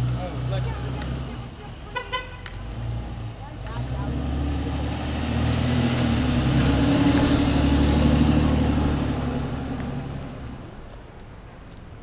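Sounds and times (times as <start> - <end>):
truck engine driving past: 2.6 - 10.8.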